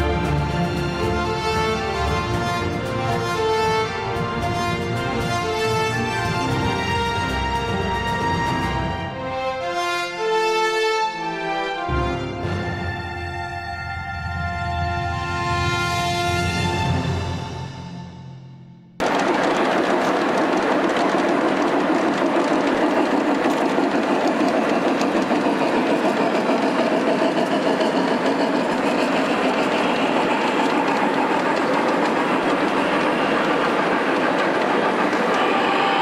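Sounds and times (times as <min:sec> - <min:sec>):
model train wheels rattling: 0:19.0 - 0:36.0.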